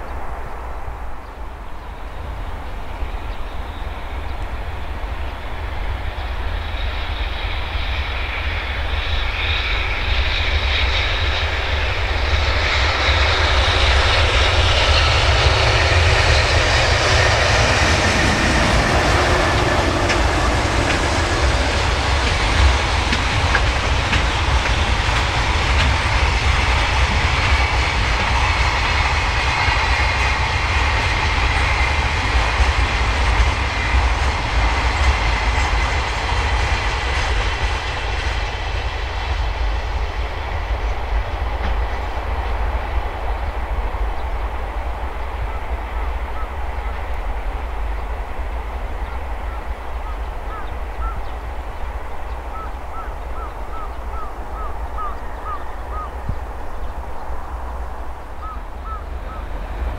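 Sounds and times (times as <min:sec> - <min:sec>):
freight train rumbling past: 0:00.0 - 0:59.9
wheel clatter on rails: 0:17.4 - 0:38.0.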